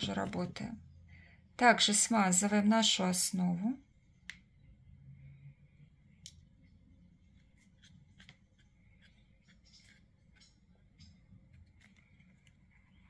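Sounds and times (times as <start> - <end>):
faint clicks and handling noises: 6.2 - 13.0.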